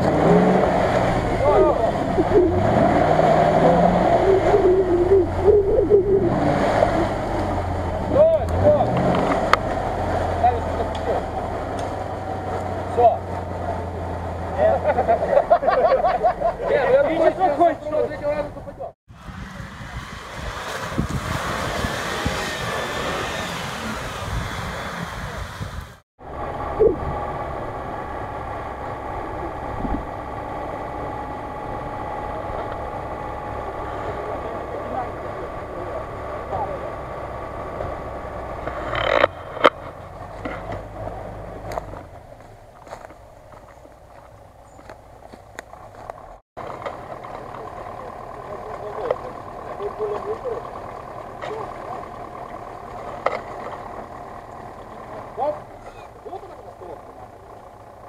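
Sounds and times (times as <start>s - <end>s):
wheels splashing water: 0.0s - 18.4s, 19.1s - 58.0s
engine running under load: 0.0s - 58.0s.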